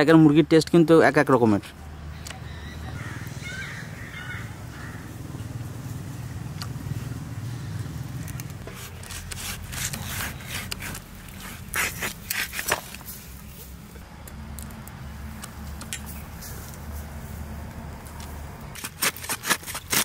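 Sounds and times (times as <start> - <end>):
bird calling: 1.9 - 5.5
rustling and scraping: 8.4 - 14.0, 15.6 - 20.0.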